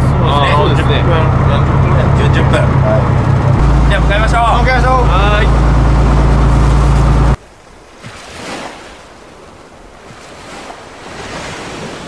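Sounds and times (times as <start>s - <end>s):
boat engine droning: 0.0s - 7.9s
ocean waves washing: 0.0s - 12.0s.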